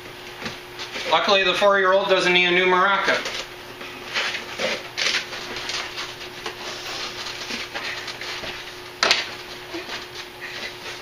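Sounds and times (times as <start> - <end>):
cardboard rustling: 3.1 - 11.0.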